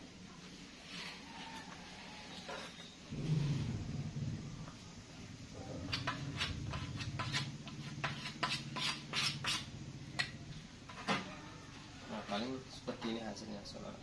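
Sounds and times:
low hum: 0:03.1 - 0:11.7
squeaky scraping on wooden board: 0:10.9 - 0:12.6.

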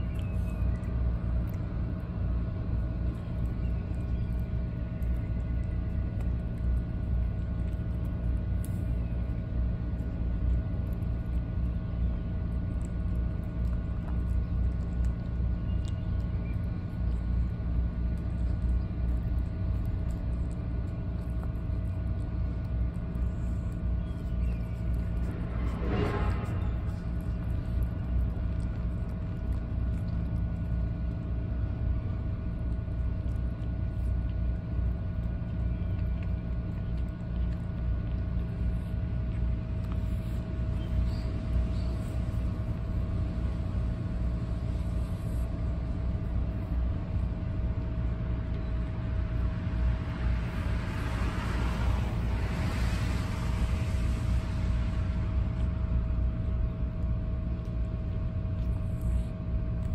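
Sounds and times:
low mechanical rumble: 0:00.0 - 0:59.9
rushing noise: 0:24.6 - 0:28.4, 0:49.4 - 0:56.4.

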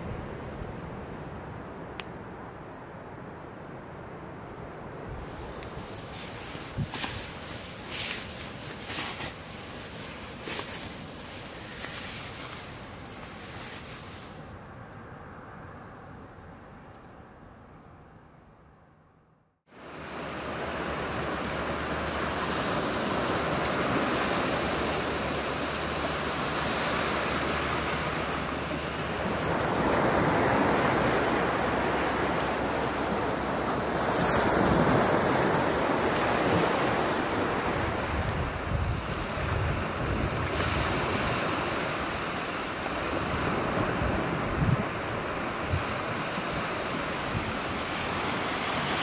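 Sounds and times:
wind buffeting microphone: 0:04.9 - 0:14.0, 0:20.3 - 0:49.0
small waves washing up beach: 0:05.2 - 0:14.5, 0:19.7 - 0:49.0.

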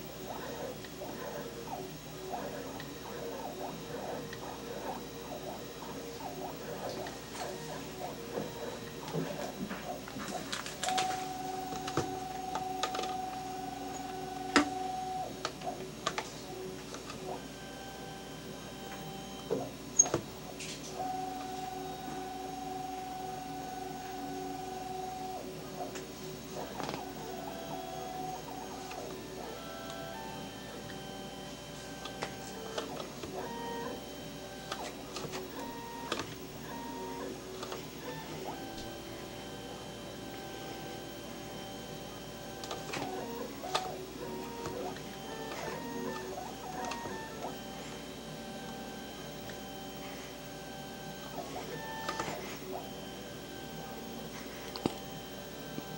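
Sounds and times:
camera drive motor whining: 0:00.0 - 0:55.9
scattered clicks: 0:00.2 - 0:17.4.

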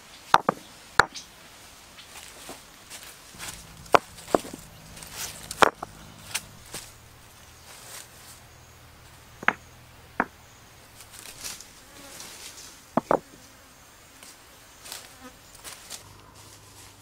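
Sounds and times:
river stones clacking together: 0:03.4 - 0:07.0.

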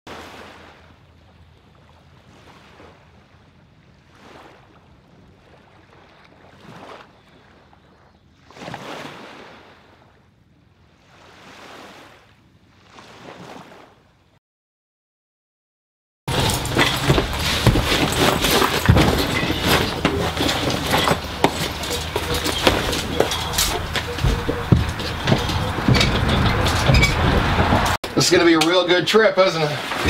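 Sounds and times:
low wind rumble: 0:16.3 - 0:28.4.

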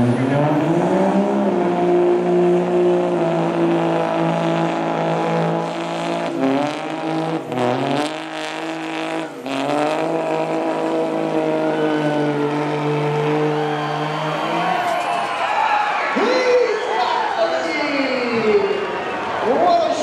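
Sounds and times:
diesel engine running under load: 0:00.0 - 0:15.1.

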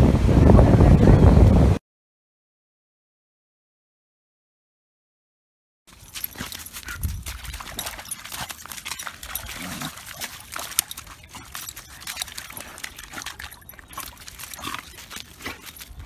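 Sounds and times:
dog splashing in shallow water: 0:05.9 - 0:16.0.

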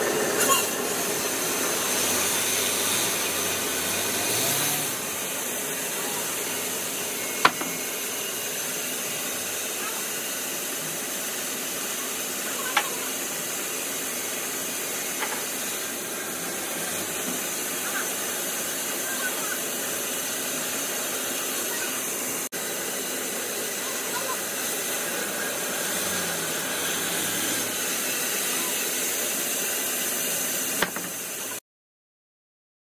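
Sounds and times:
faint voices: 0:11.8 - 0:13.6, 0:23.5 - 0:25.6.

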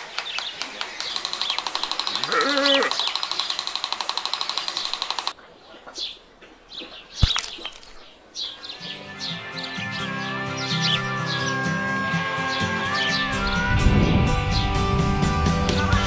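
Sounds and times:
bird trilling: 0:01.0 - 0:03.8.

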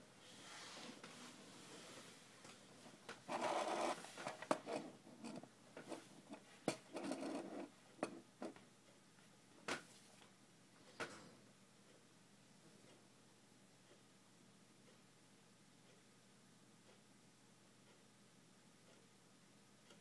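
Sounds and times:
quiet rustling and scraping: 0:00.2 - 0:08.6, 0:09.2 - 0:10.3.

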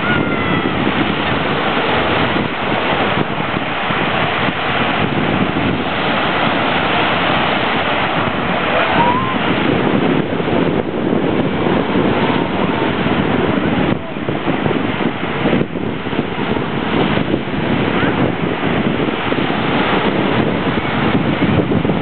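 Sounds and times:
surf washing onto sandy shore: 0:00.0 - 0:22.0
wind buffeting microphone: 0:00.0 - 0:22.0.

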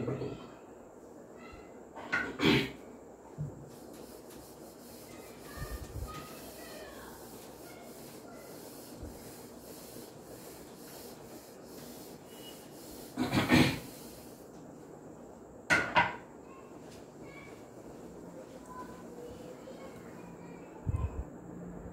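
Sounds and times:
duster rubbing on whiteboard: 0:03.6 - 0:14.5.

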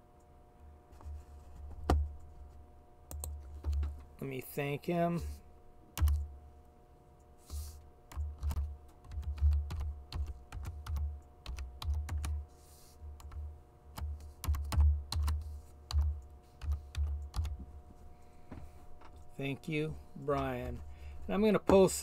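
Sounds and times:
computer keyboard typing: 0:03.1 - 0:03.9, 0:06.0 - 0:06.3, 0:08.1 - 0:12.4, 0:13.2 - 0:17.6.

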